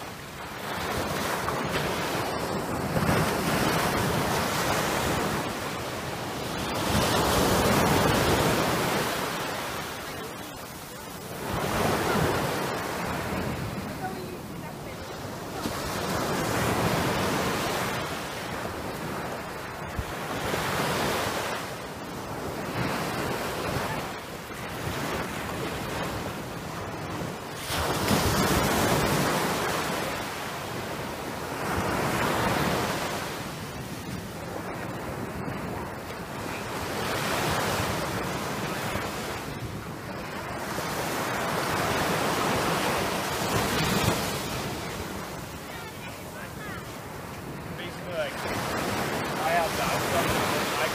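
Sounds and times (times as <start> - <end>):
small waves breaking on sand: 0.0 - 50.9.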